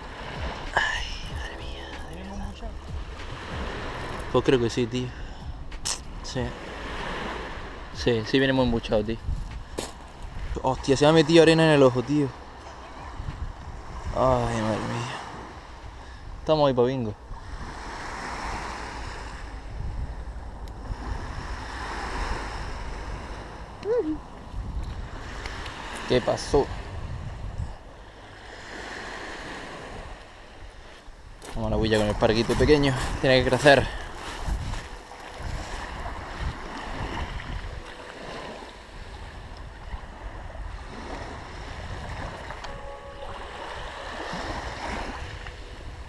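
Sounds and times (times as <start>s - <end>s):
waves washing on shingle beach: 0.0s - 16.0s, 20.8s - 23.8s, 24.7s - 27.2s, 28.1s - 46.0s
wind rumbling on microphone: 0.0s - 46.0s
waves washing over shingle: 31.7s - 38.7s.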